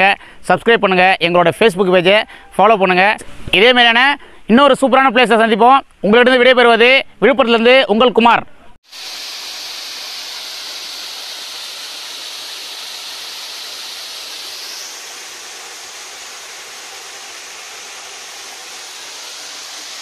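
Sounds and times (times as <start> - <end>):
small waterfall rushing: 8.8 - 20.0.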